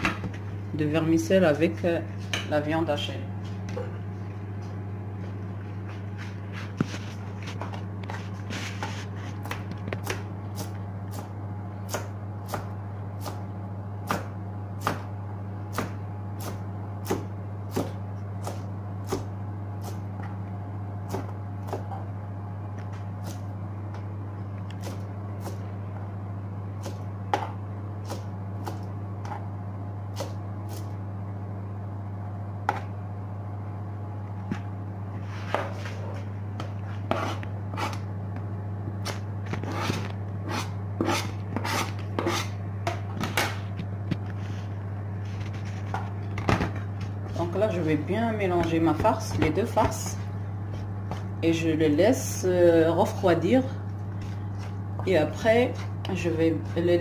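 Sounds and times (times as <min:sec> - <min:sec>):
steady low hum: 0:00.0 - 0:57.0
knife chopping on plastic board: 0:14.0 - 0:15.1, 0:15.7 - 0:19.3, 0:26.8 - 0:29.4.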